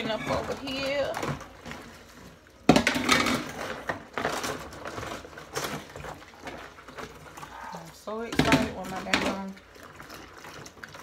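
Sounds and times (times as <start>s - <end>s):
dishes clattering in metal sink: 2.7s - 7.0s.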